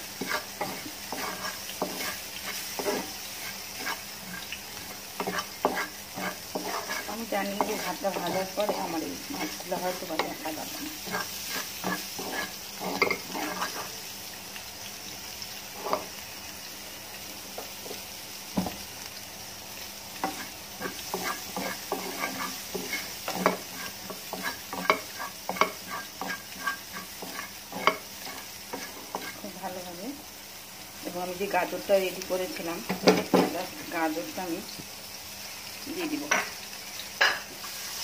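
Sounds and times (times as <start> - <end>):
spatula scraping a frying pan: 0.0 - 14.1, 15.6 - 16.2, 20.2 - 29.6
hot oil sizzling: 0.0 - 38.0.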